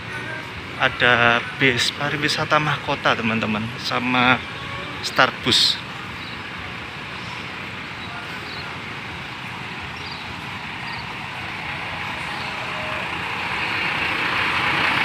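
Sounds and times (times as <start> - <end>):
traffic and engine noise: 0.0 - 15.0.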